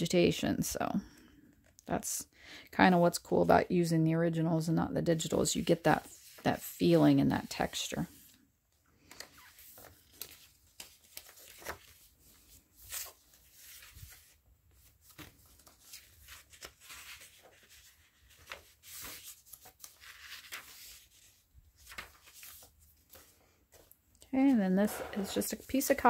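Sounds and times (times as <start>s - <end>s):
paper pages rustling: 9.0s - 24.2s, 24.8s - 26.0s.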